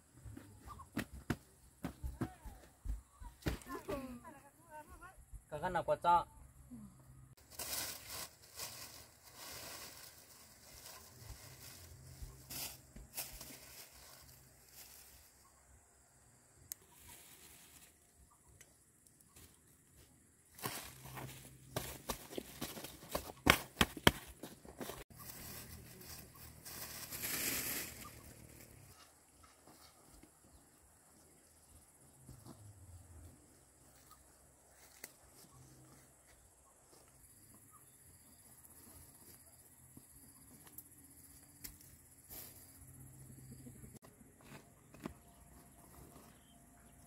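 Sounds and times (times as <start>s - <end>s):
plastic bags rustling: 7.4s - 15.1s
hands patting soil in plastic sack: 7.4s - 15.4s, 20.5s - 30.4s.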